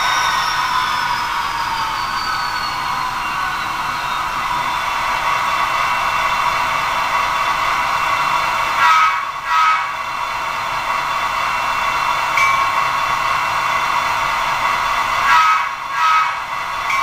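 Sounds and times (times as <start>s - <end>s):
locomotive horn: 8.8s - 10.0s, 15.2s - 16.5s.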